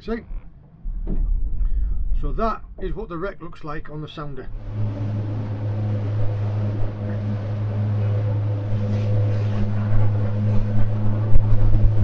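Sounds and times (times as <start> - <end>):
low thumps: 0.0 - 12.0
wind and water rushing: 1.0 - 12.0
outboard motor droning: 4.5 - 12.0.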